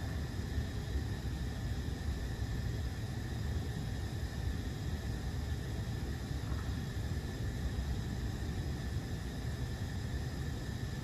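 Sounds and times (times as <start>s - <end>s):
low room rumble: 0.0s - 11.0s.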